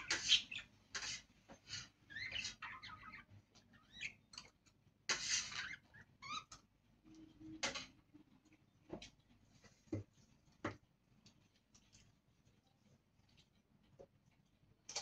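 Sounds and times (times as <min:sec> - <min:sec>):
budgerigars chirping: 0:00.0 - 0:00.7.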